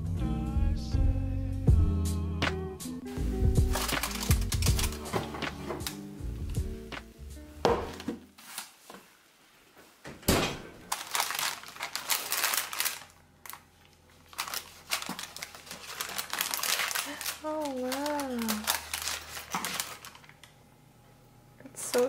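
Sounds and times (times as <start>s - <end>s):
background music: 0.0s - 8.1s
parchment paper crinkling: 3.1s - 6.8s, 7.8s - 9.2s, 10.9s - 20.6s.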